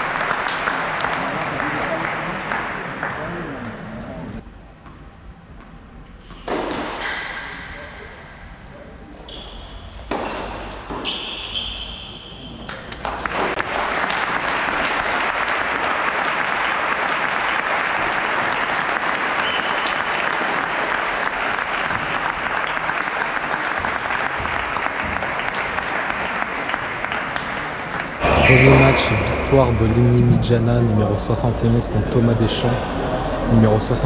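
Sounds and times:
audience applauding: 0:00.0 - 0:03.7, 0:12.7 - 0:28.9.

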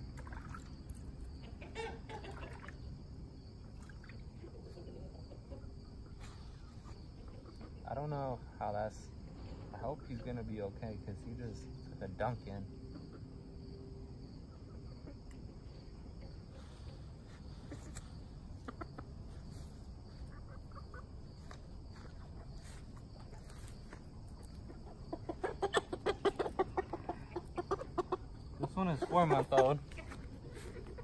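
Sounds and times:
chicken squawking: 0:01.4 - 0:02.7, 0:24.6 - 0:31.0.

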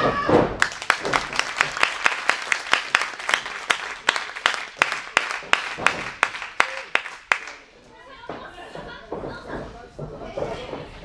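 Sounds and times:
audience clapping in rhythm: 0:00.6 - 0:07.7.

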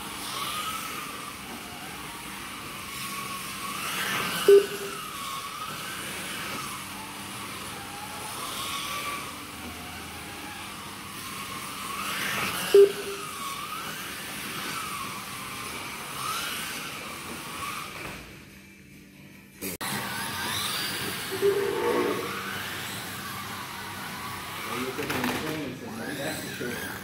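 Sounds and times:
slot car motors whining: 0:00.0 - 0:19.0, 0:19.6 - 0:27.0
short loud beep: 0:04.5 - 0:05.0, 0:12.8 - 0:13.3, 0:21.4 - 0:22.4.

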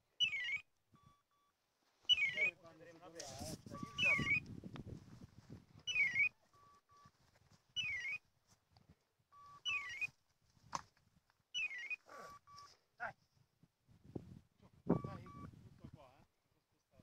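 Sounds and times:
short double beeps: 0:00.2 - 0:01.5, 0:03.5 - 0:04.5, 0:05.9 - 0:07.1, 0:09.3 - 0:10.1, 0:11.6 - 0:12.7, 0:14.9 - 0:15.6.

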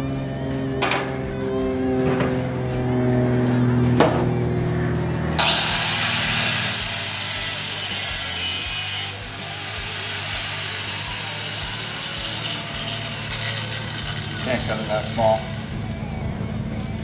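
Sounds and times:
angle grinder cutting metal: 0:05.4 - 0:15.9.

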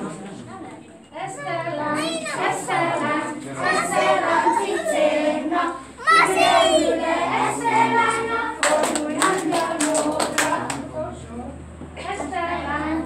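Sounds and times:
children and adults singing: 0:01.0 - 0:13.0
sharp claps: 0:08.6 - 0:10.8.

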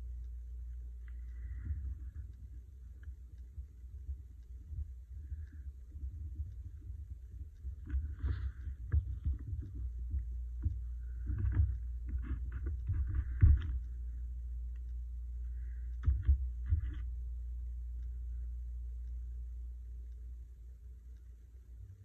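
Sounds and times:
low steady hum: 0:00.0 - 0:22.0.

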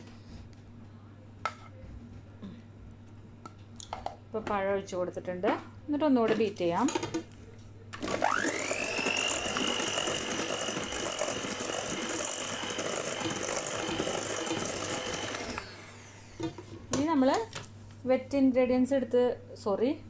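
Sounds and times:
beaters whipping batter in steel bowl: 0:08.0 - 0:16.5
electric hand mixer motor whining: 0:08.0 - 0:16.6.

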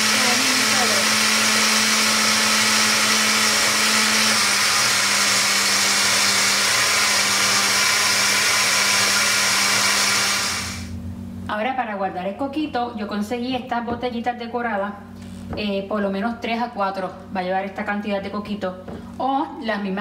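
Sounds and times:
blender running: 0:00.0 - 0:11.0.

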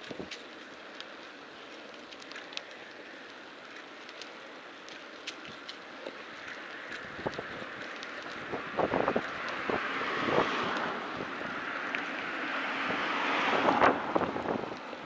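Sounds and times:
wind rushing over microphone: 0:07.0 - 0:15.0.

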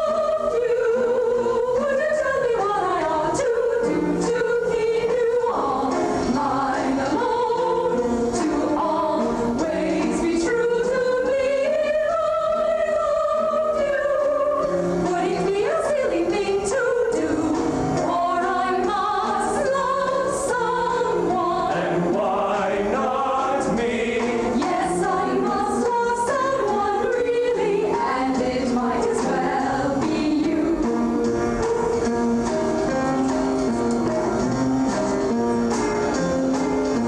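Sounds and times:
musical accompaniment: 0:00.0 - 0:37.0
voices singing in chorus: 0:16.4 - 0:32.0.

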